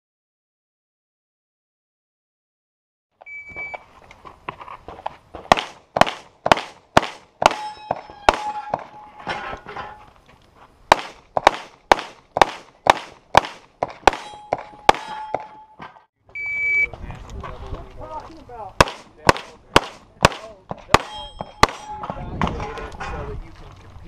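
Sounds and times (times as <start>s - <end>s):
shot timer beep: 3.3s - 3.8s, 16.3s - 16.9s
pistol shots: 5.5s - 8.9s, 10.9s - 15.5s, 18.8s - 22.0s
steel targets ringing: 7.4s - 10.1s, 14.1s - 16.0s, 21.0s - 22.3s.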